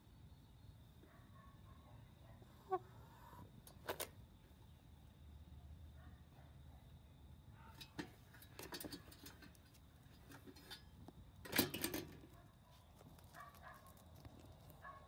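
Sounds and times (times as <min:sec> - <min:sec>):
hens pecking on metal feeder: 0:07.6 - 0:15.0.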